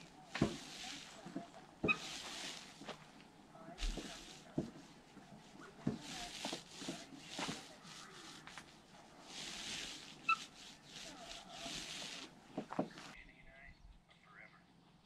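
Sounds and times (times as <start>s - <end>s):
paint roller strokes: 0.0s - 13.2s.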